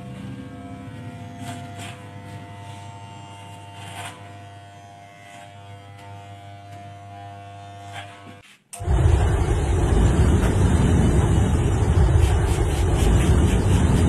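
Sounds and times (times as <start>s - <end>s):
electric hair clipper buzzing: 0.0s - 8.9s.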